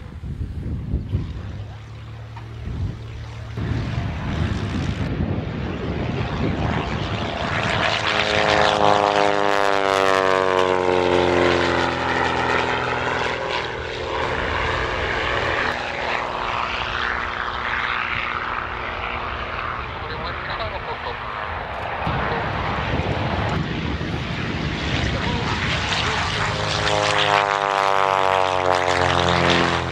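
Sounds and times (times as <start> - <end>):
propeller plane engine: 0.0 - 29.9.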